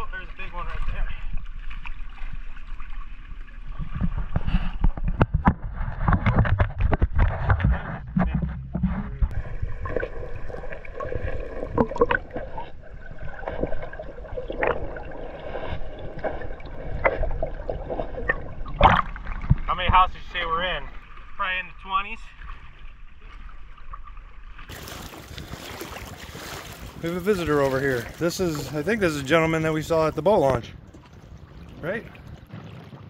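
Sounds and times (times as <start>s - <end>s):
water splashing from wading: 0.0s - 33.0s
low rumble: 5.5s - 21.4s.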